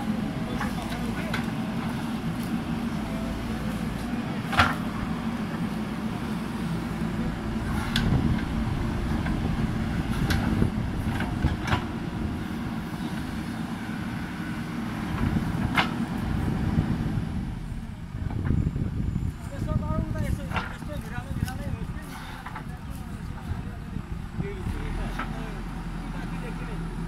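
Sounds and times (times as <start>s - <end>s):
diesel engine running: 0.0s - 27.0s.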